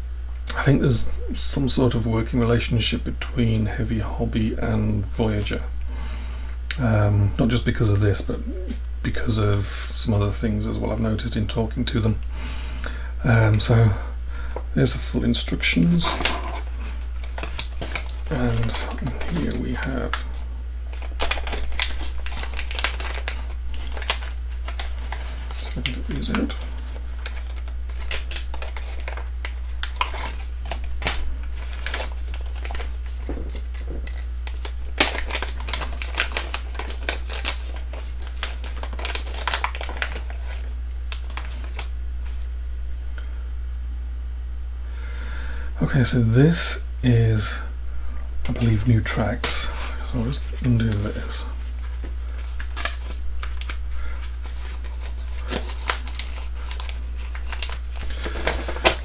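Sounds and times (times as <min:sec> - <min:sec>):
steady low hum: 0:00.0 - 0:59.0
plastic bag crinkling: 0:14.8 - 0:42.5, 0:48.4 - 0:59.0.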